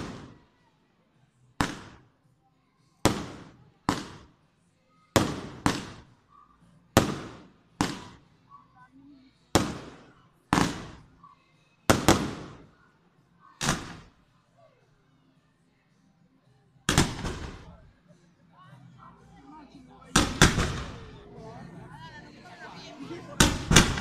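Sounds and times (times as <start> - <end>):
fireworks bangs: 20.2 - 21.1, 23.4 - 24.0.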